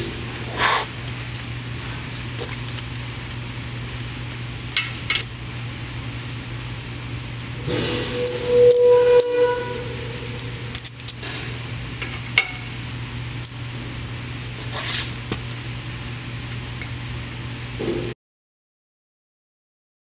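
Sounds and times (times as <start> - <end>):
steady low hum: 0.0 - 18.2
steel bars clinking: 7.7 - 9.6, 10.2 - 11.3.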